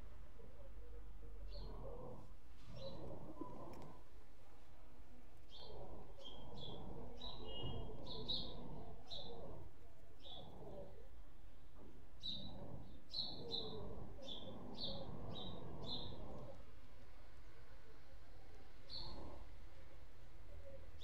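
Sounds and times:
small bird chirping: 5.5 - 10.9, 12.2 - 16.5, 18.8 - 19.5.

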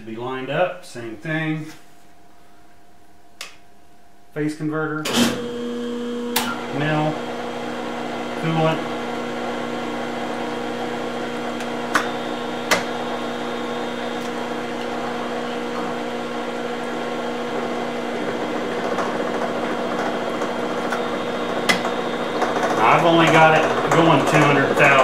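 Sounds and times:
milling machine humming: 5.1 - 25.0
coolant flowing: 6.8 - 25.0
gear cutter cutting metal: 10.8 - 16.0, 16.8 - 25.0.

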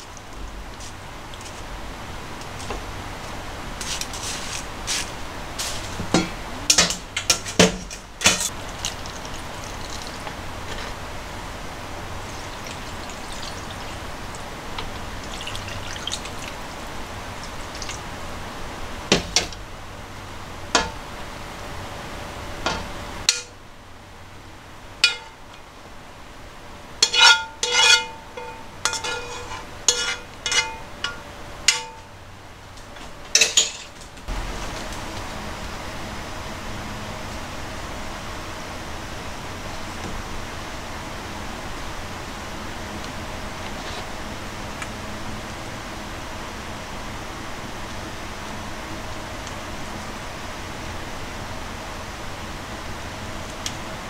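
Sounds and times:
steady hiss: 8.2 - 54.0
spoon scraping frying pan: 25.0 - 25.4, 27.0 - 32.1.

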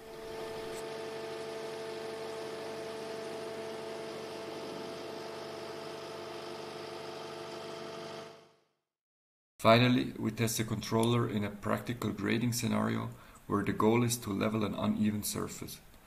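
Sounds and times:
excavator engine and hydraulics hum: 0.0 - 8.5.

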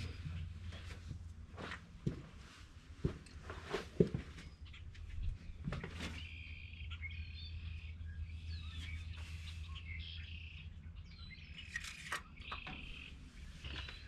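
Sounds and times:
birds chirping and singing: 4.4 - 14.0.

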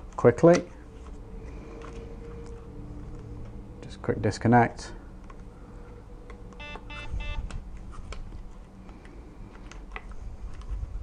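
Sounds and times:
short electronic beeps: 6.6 - 7.4.

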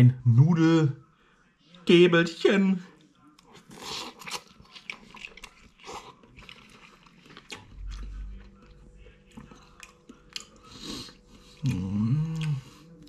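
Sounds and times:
person humming: 11.6 - 12.8.

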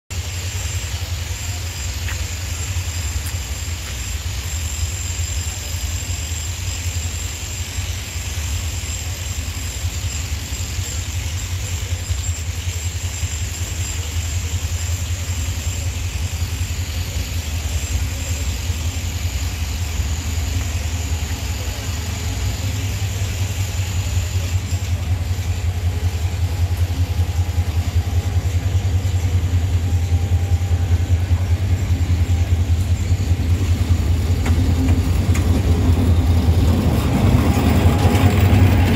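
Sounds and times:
locomotive engine rumbling: 0.1 - 38.9.

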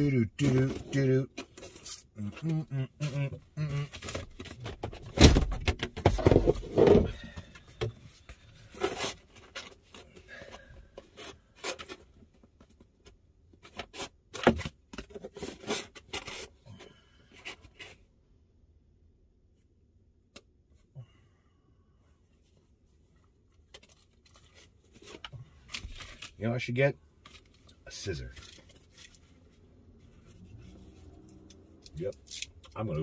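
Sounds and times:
rustles and scrapes of materials: 6.0 - 14.3, 15.0 - 18.1, 22.2 - 26.6, 27.2 - 33.0.

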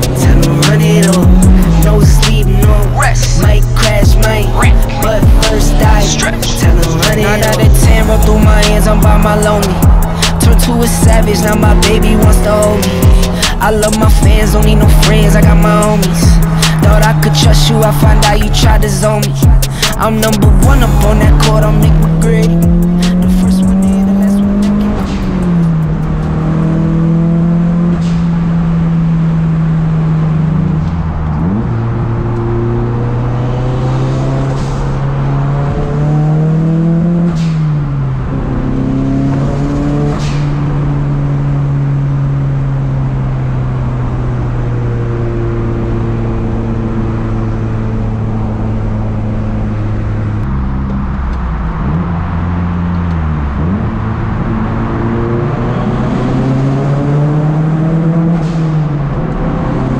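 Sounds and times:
car engine at speed: 0.0 - 59.9.

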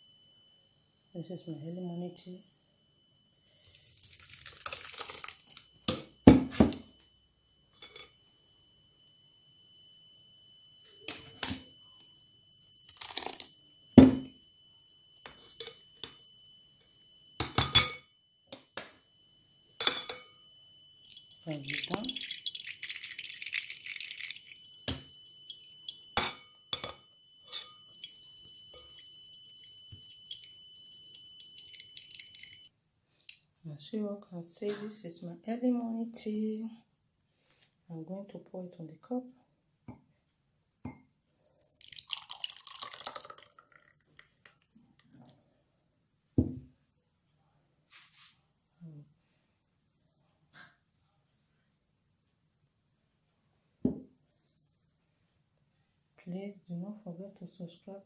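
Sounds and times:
juice trickling through strainer: 3.6 - 5.6, 12.9 - 13.5, 21.0 - 26.1, 28.0 - 32.7, 41.7 - 44.7
juice dripping: 3.6 - 5.8, 12.9 - 13.5, 21.0 - 26.2, 27.9 - 32.7, 41.6 - 45.1.

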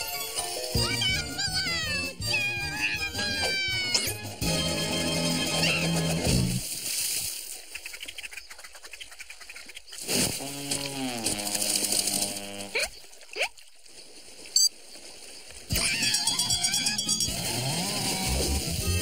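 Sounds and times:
cartoon tone dropping in pitch: 0.8 - 6.1.

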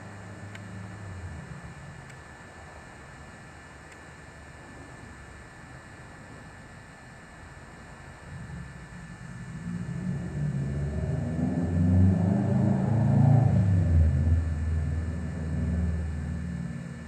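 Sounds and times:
passing vehicle rumble: 9.5 - 16.9.

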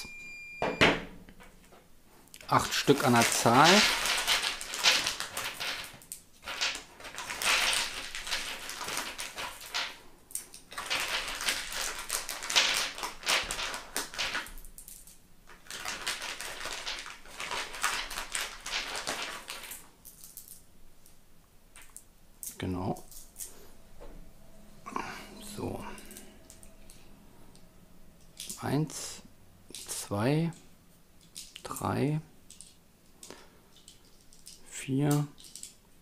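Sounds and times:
plastic bag crinkling: 2.4 - 20.6
metal balls clicking together: 31.2 - 31.9, 32.5 - 35.9.

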